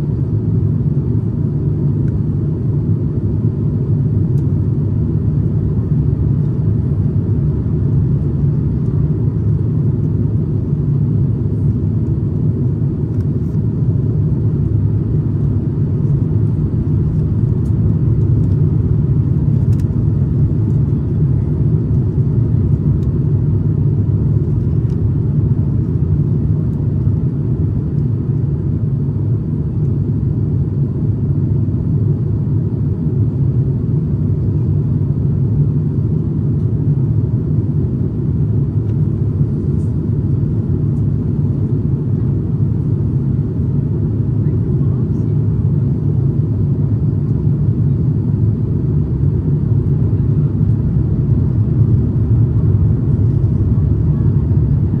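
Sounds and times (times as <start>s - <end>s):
airplane cabin rumble: 0.0s - 55.0s.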